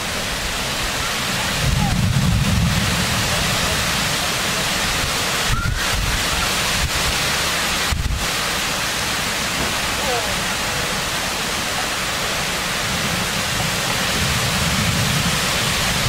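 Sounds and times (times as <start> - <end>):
heavy rain hissing: 0.0 - 16.0
wind gusts buffeting microphone: 0.3 - 8.4, 12.6 - 16.0.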